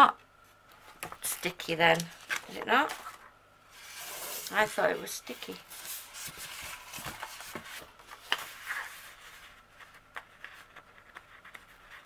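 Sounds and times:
paper rustling: 0:03.8 - 0:12.0.

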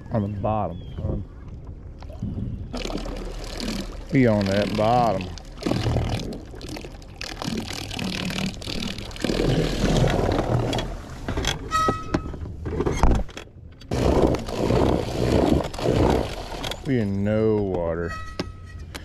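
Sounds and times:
electric trolling motor churning water: 0:02.6 - 0:11.7, 0:13.9 - 0:17.5.

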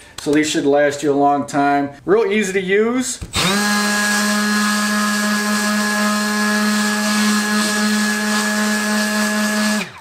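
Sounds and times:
detail sander motor hum: 0:03.4 - 0:10.0.

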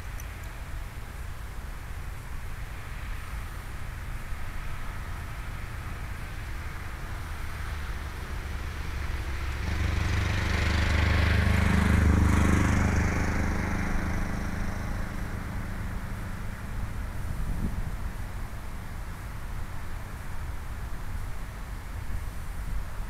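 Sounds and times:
vehicle driving past: 0:07.1 - 0:19.2.

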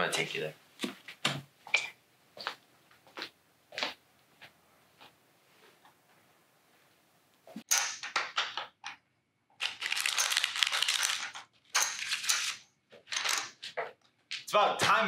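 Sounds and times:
poker chips clattering: 0:09.6 - 0:12.6
cards rustling and clicking: 0:09.6 - 0:13.8.

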